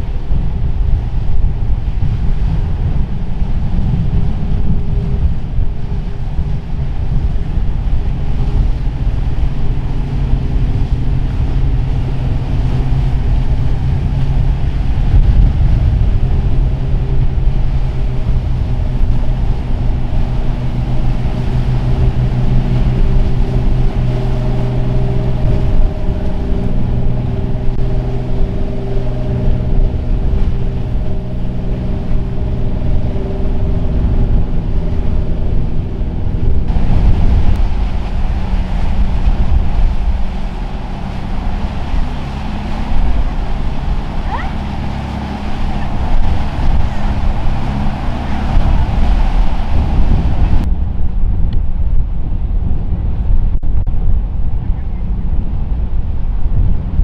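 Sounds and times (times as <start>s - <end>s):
boat engines droning: 0.0s - 50.9s, 54.0s - 57.0s.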